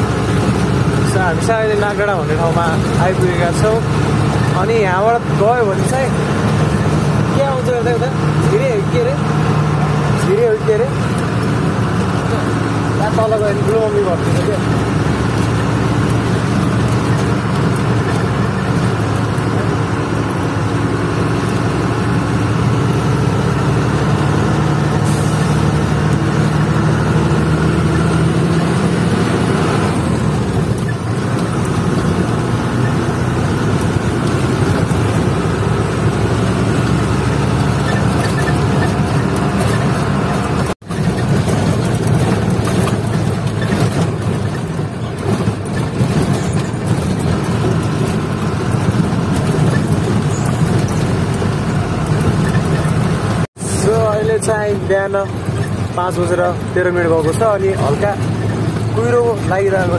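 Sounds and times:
road noise: 0.0 - 59.9
truck engine running: 0.0 - 59.9.

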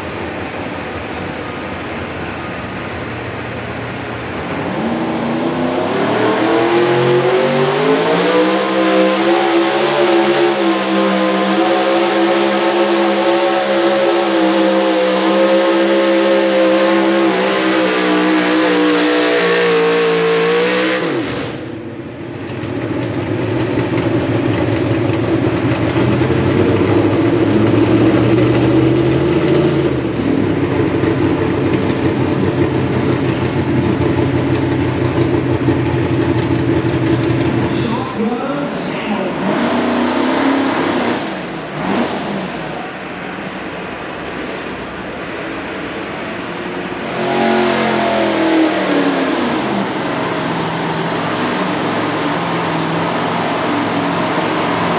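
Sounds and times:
truck engine at full throttle: 0.0 - 54.9.

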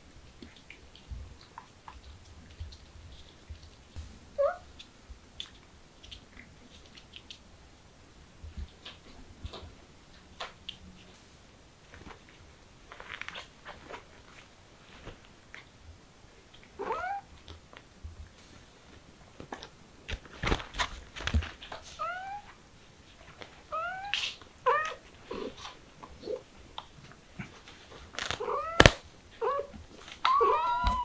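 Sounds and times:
kittens mewing: 16.8 - 17.3, 23.7 - 26.5, 28.2 - 31.0.

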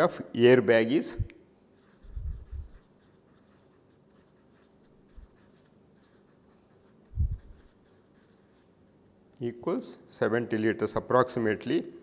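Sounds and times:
marker scratching on paper: 1.8 - 8.8.

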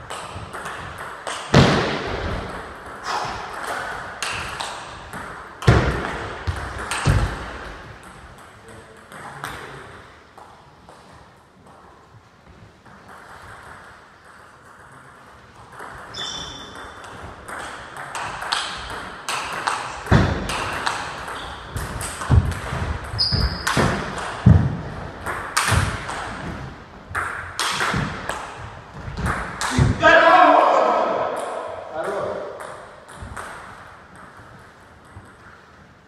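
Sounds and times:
heavier thuds: 21.8 - 26.7.

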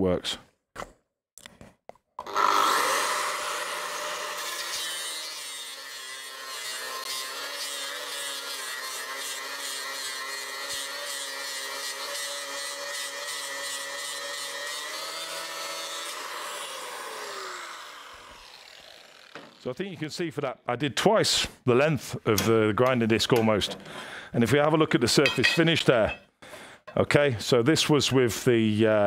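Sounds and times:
angle grinder grinding steel: 2.2 - 19.7, 22.5 - 26.2
grinder motor winding down: 2.2 - 19.7.

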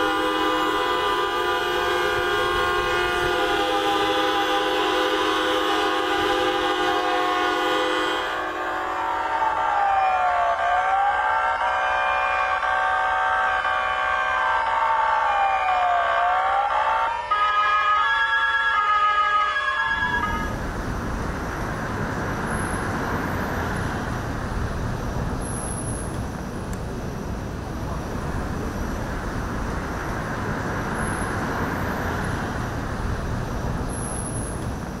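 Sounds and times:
steady horn tones: 0.0 - 9.8, 19.8 - 20.7
fire engine sirens wailing: 0.0 - 26.0
rushing outdoor din: 19.6 - 35.0.

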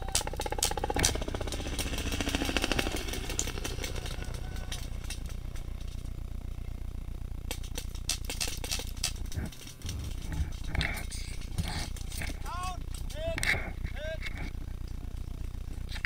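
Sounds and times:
paintball markers firing rapidly: 0.0 - 6.0, 7.4 - 12.4.

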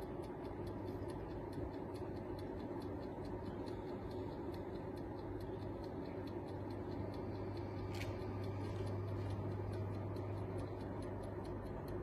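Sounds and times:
electric oven humming: 0.0 - 12.0
fast light ticking: 0.0 - 12.0.

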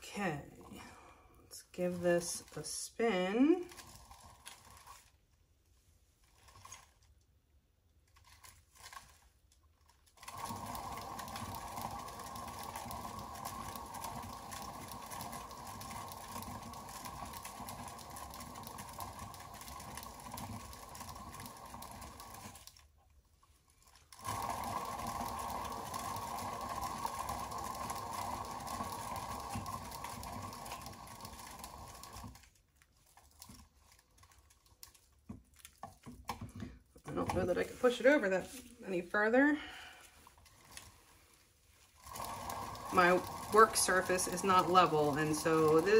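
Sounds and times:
small electric motor whirring: 10.2 - 22.7, 24.1 - 32.4, 42.0 - 45.9.

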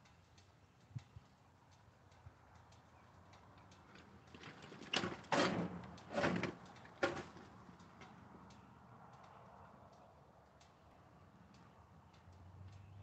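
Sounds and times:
wheeled cart scraping and rumbling: 4.4 - 7.4.

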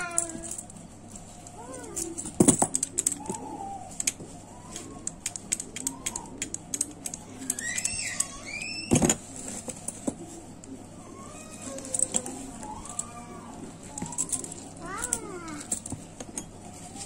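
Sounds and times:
keys and padlock clicking: 0.0 - 0.8, 1.4 - 4.2, 4.8 - 10.0, 11.8 - 13.2, 13.9 - 16.6.

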